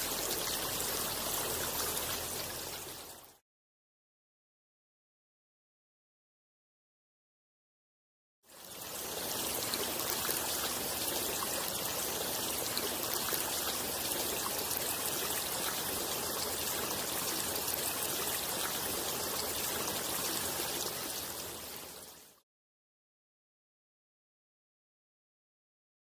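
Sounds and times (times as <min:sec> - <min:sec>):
running water rushing: 0:00.0 - 0:03.4, 0:08.5 - 0:22.4.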